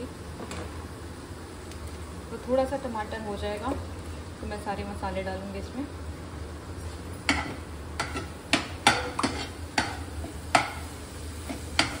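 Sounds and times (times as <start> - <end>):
masala sizzling: 0.0 - 12.0
spoon knocking against pan: 7.3 - 10.8, 11.8 - 12.0.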